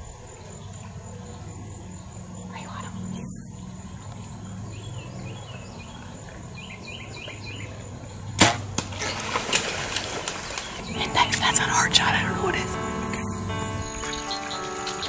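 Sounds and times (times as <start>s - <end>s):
animals rustling through brush: 2.4s - 12.8s
bowstring snap: 8.4s - 8.9s
arrow striking crack: 8.4s - 10.8s.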